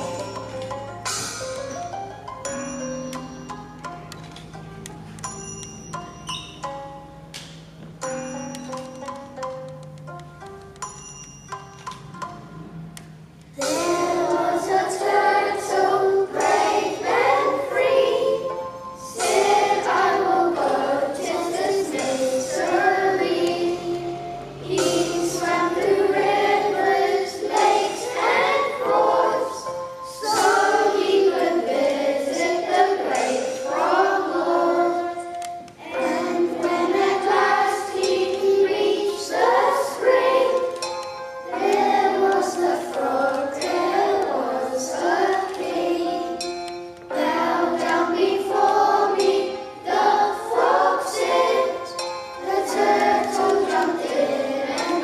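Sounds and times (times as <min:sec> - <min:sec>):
children singing together: 0:00.0 - 0:01.4, 0:13.5 - 0:55.0
backing music: 0:00.0 - 0:55.0.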